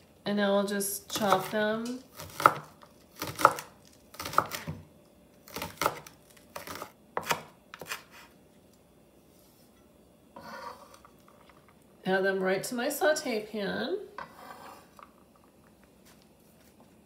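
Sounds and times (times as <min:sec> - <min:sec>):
knife chopping on wooden board: 0:01.2 - 0:01.5, 0:02.2 - 0:04.8, 0:05.5 - 0:08.2.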